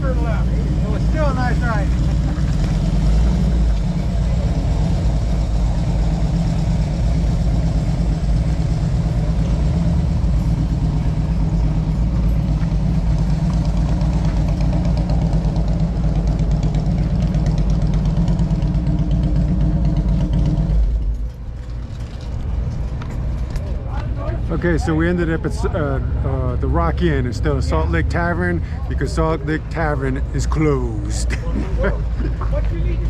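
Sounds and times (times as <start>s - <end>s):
motorcycle engine running: 0.0s - 23.2s.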